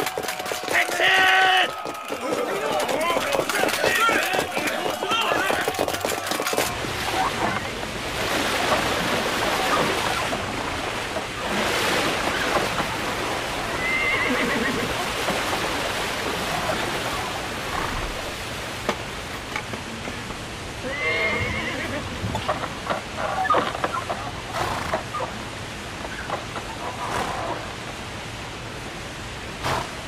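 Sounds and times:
splashing river water: 0.0 - 30.0
horses whinnying: 0.1 - 7.7, 13.6 - 15.3, 20.8 - 22.2, 23.2 - 25.4.

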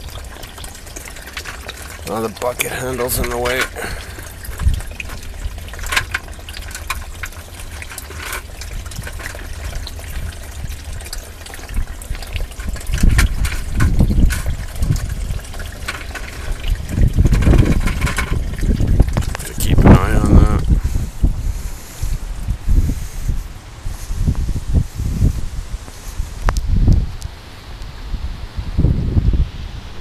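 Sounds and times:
water trickling in a drain pipe: 0.0 - 27.3
heavy low rumbles: 8.6 - 27.2.

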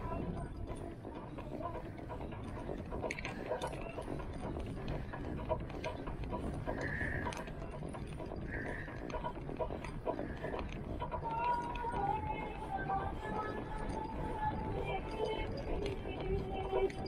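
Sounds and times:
bike clicking and rattling: 0.0 - 12.7.

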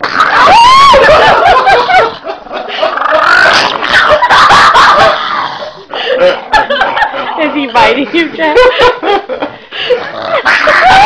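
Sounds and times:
high sliding cries: 0.0 - 2.1
man laughing loudly: 0.3 - 7.7, 8.4 - 11.0
dog growling: 2.8 - 8.4, 9.9 - 11.0.

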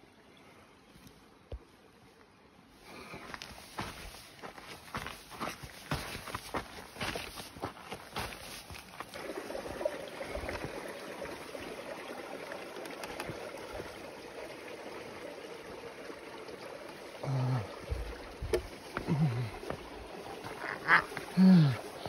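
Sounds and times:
stream water running: 0.0 - 22.0
boots thumping on logs: 17.9 - 21.3.

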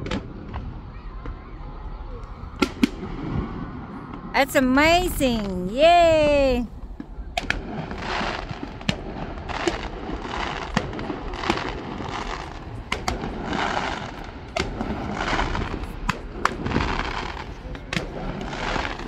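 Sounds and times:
distant firework bangs: 6.9 - 19.0
firework crackling: 7.4 - 19.0.

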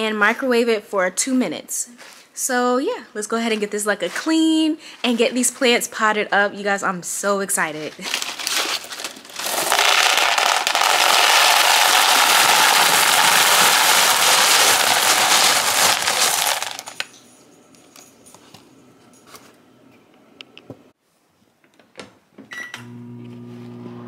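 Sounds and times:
clay pebbles pouring into plastic bowl: 8.2 - 17.1.

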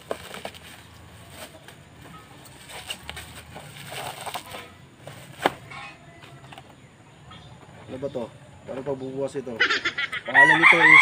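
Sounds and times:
packaging rustling: 0.0 - 1.8, 2.5 - 5.6.

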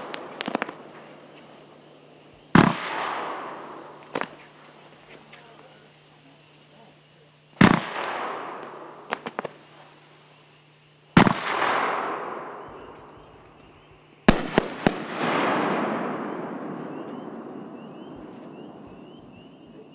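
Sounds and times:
fireworks bangs with echo: 0.0 - 4.7, 7.6 - 9.9, 11.1 - 13.5, 14.2 - 19.9
sharp cracks: 0.0 - 5.7, 7.6 - 10.0, 11.2 - 19.6
fireworks crackling: 0.0 - 19.9.

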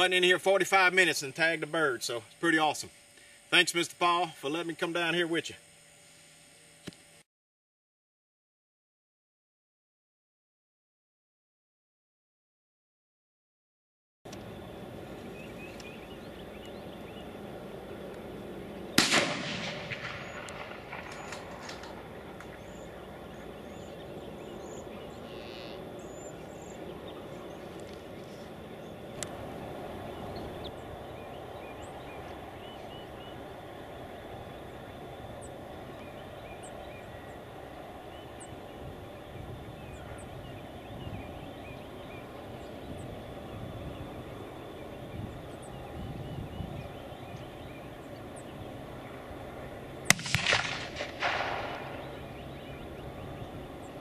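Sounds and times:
faint songbird chirps: 14.3 - 19.0, 20.0 - 50.2, 51.3 - 54.0
sharp crack: 18.9 - 22.9, 50.1 - 52.4.

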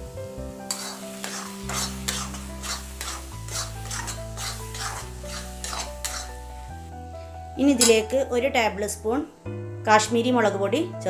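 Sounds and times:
background music: 0.0 - 11.0
spatula scraping metal pan: 0.7 - 6.5.

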